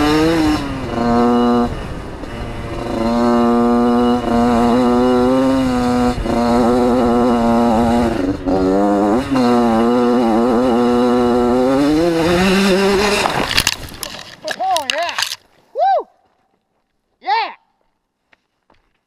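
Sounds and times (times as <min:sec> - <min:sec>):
two-stroke engine revving high: 0:00.0 - 0:13.7.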